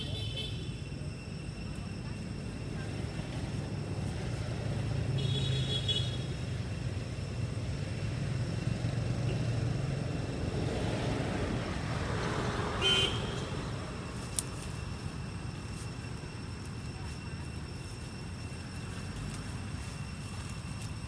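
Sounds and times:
vehicle engine humming: 0:00.0 - 0:21.0
vehicle passing: 0:02.8 - 0:15.4.

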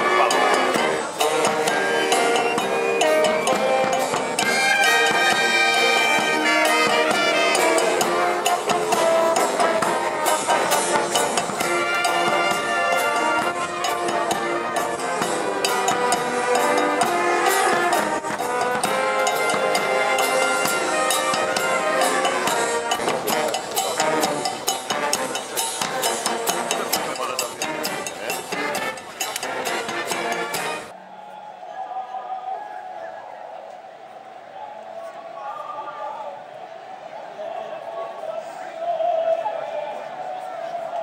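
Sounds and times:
marching brass band playing: 0:00.0 - 0:31.0.

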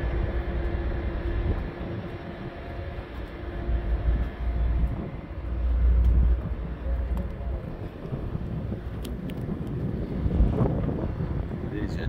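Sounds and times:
ferry machinery hum: 0:00.0 - 0:12.0
wind gusts on microphone: 0:00.0 - 0:12.0.

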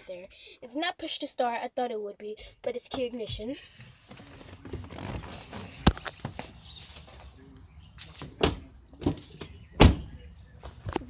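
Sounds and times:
rustling and handling noise: 0:03.0 - 0:07.3.

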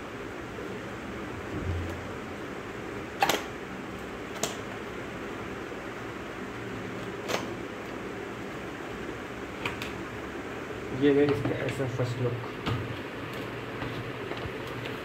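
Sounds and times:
steady room hum: 0:00.0 - 0:15.0.

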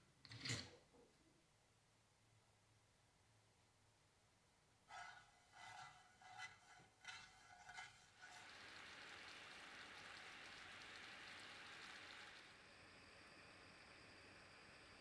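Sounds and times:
spatula scraping sugar in pan: 0:04.9 - 0:09.6
sugar sizzling in pan: 0:04.9 - 0:15.0.

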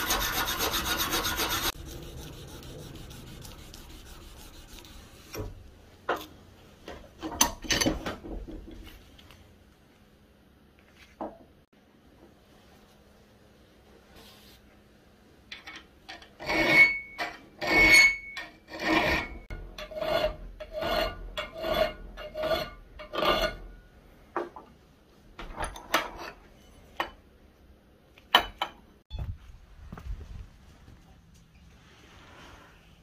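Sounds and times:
file rasping on steel: 0:00.0 - 0:05.5, 0:17.6 - 0:23.6.

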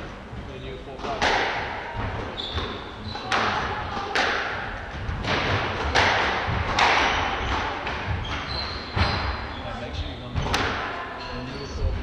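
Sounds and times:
squash ball cracking off walls: 0:01.1 - 0:09.4
shoes squeaking on wooden floor: 0:02.2 - 0:03.5, 0:06.8 - 0:10.5.

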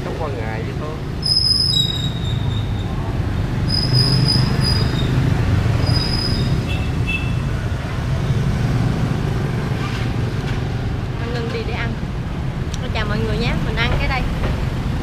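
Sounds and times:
traffic engines rumbling: 0:00.0 - 0:15.0
high-pitched squeals: 0:01.2 - 0:03.0, 0:03.6 - 0:06.7.

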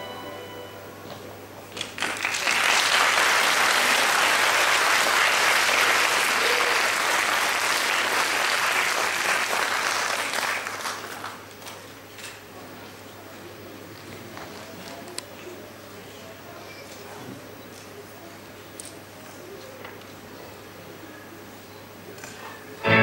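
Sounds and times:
audience applauding: 0:01.7 - 0:11.5.

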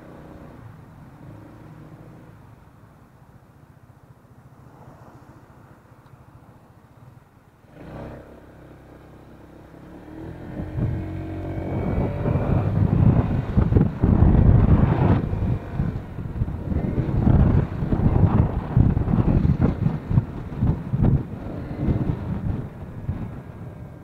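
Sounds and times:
scooter engine accelerating: 0:07.7 - 0:24.0
wind rumbling on microphone: 0:09.6 - 0:24.0.

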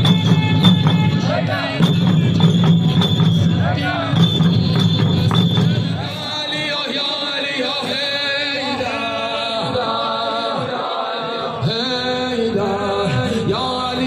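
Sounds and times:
person chanting a lament: 0:05.9 - 0:14.0.

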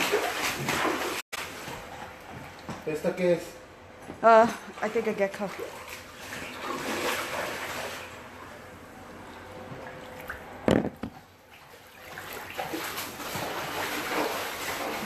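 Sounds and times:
floodwater sloshing and trickling: 0:00.0 - 0:02.9, 0:04.6 - 0:15.0.

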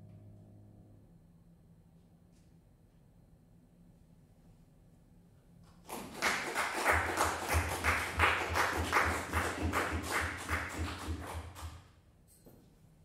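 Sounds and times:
people clapping: 0:05.6 - 0:11.9.

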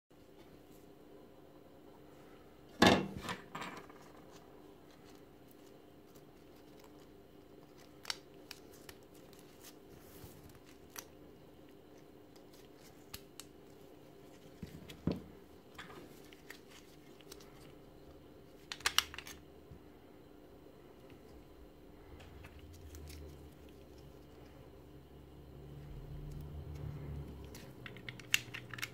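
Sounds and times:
plastic battery parts clicking: 0:18.7 - 0:19.4, 0:27.4 - 0:28.9.

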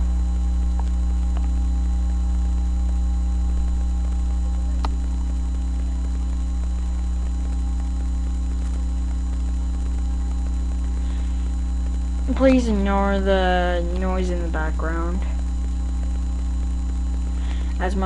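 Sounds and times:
low electrical mains hum: 0:00.0 - 0:18.0
faint clicks: 0:00.3 - 0:01.7, 0:03.6 - 0:12.3.

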